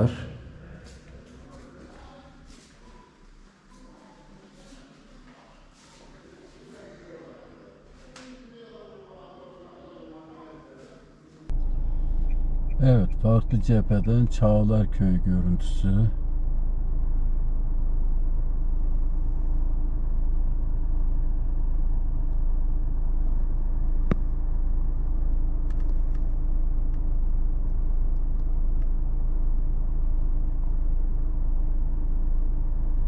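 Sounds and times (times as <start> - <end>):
car engine humming: 11.5 - 33.0.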